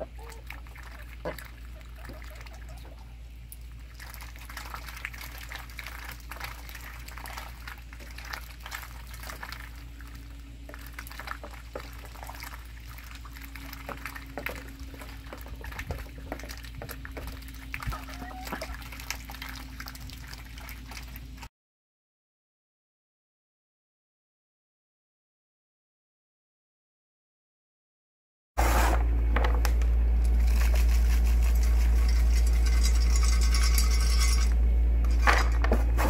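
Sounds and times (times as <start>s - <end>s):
ducks splashing in water: 0.0s - 21.5s
low hum: 0.0s - 21.5s, 28.6s - 36.0s.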